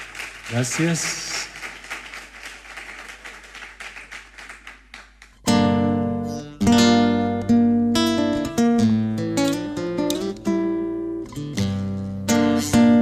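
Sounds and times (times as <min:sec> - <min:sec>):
scattered applause: 0:00.0 - 0:05.4
classical guitar strummed chords: 0:05.5 - 0:13.0.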